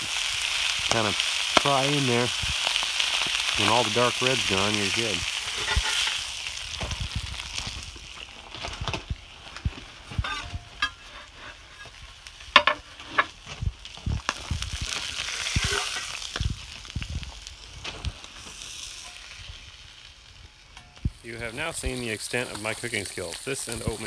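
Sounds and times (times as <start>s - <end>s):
fish sizzling in a skillet: 0.0s - 24.0s
spatula clinking and scraping: 5.4s - 6.2s, 10.2s - 11.9s, 15.4s - 16.2s.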